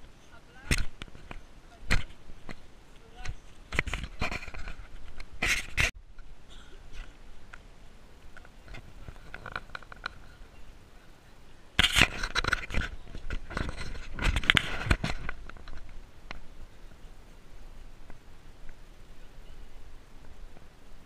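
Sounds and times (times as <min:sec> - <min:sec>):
knocks and rubbing on microphone: 0:03.2 - 0:06.0, 0:11.8 - 0:16.4.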